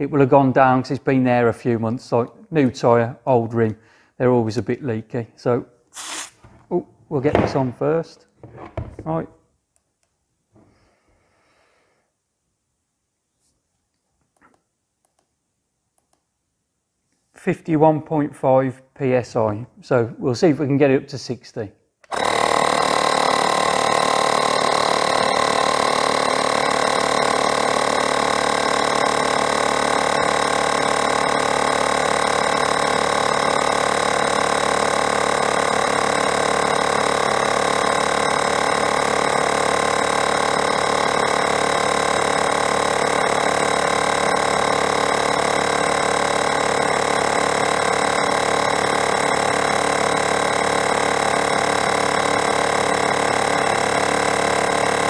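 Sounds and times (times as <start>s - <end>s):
air compressor running: 6.0s - 6.6s, 22.0s - 55.0s.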